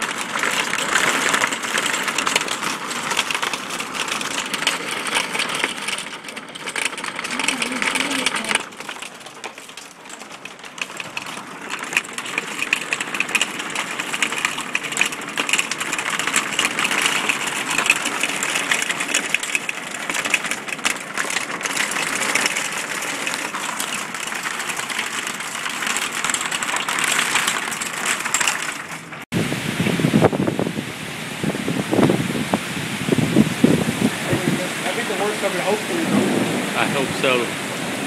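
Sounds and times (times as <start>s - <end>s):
hail rattling on vehicle roof: 0.0s - 29.3s, 33.1s - 38.0s.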